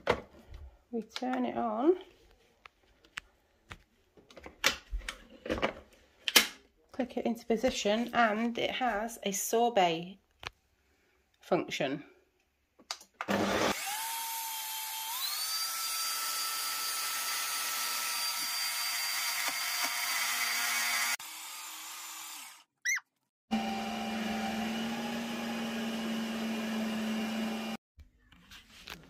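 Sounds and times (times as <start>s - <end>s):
ice cream maker motor whirring: 13.2s - 15.5s, 23.5s - 27.8s.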